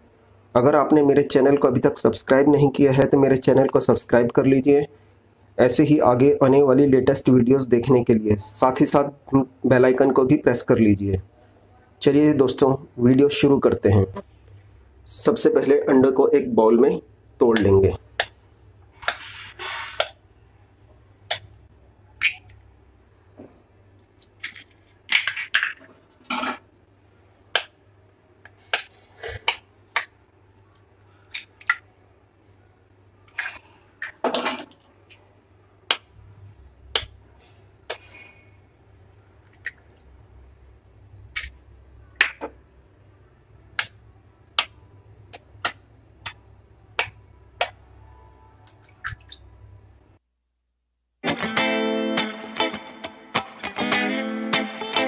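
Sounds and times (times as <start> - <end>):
faint low hum: 25.8 - 51.0.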